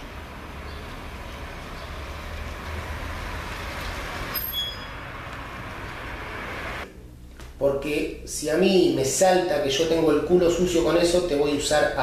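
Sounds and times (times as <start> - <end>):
low rumble and hiss: 0.0 - 12.0
high-pitched squeal: 4.3 - 5.2.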